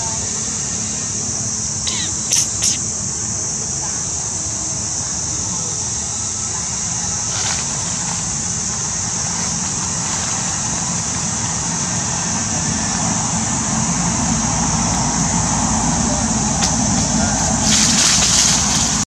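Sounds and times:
high hiss: 0:15.8 - 0:19.0.

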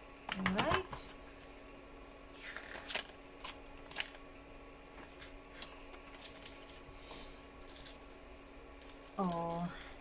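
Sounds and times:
faint steady hum: 0:00.0 - 0:10.0
paper and cardboard rustling: 0:02.3 - 0:04.2, 0:05.0 - 0:06.9.

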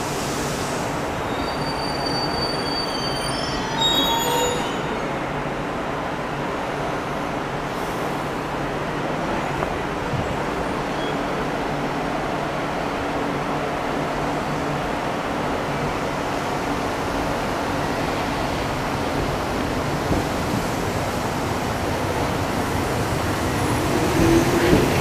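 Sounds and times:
high wheel squeals: 0:01.2 - 0:05.2
train wheels rolling on rail: 0:06.0 - 0:25.0.

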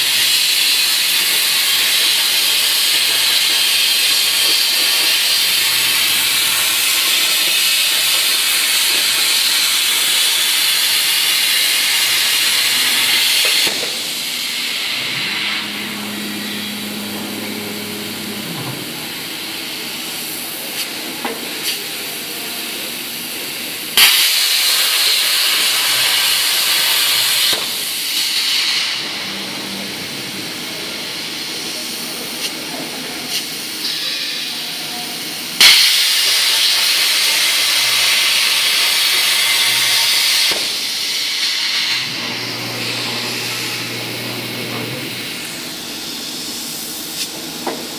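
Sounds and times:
plasma cutter arc hissing: 0:00.0 - 0:34.6, 0:35.6 - 0:47.9
machine hum: 0:11.8 - 0:20.7, 0:28.7 - 0:31.9, 0:42.0 - 0:46.8.

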